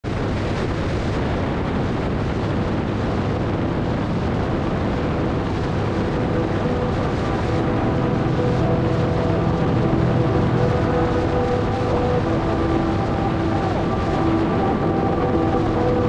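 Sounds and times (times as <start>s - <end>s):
wind buffeting microphone: 0.1s - 16.0s.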